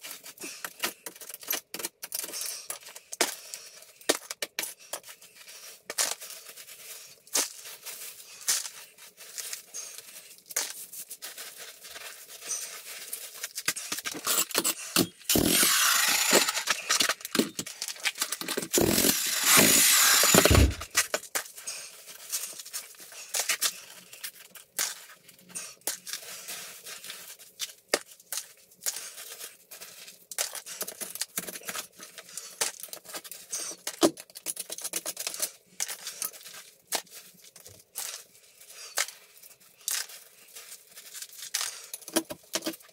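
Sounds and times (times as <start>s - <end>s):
hands scraping rubble and gravel: 0.1s - 21.6s.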